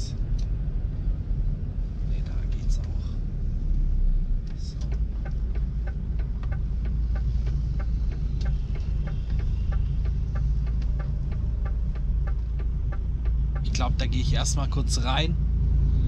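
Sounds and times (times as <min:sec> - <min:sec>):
diesel engine rumble: 0:00.0 - 0:16.0
indicator relay ticking: 0:04.7 - 0:15.4.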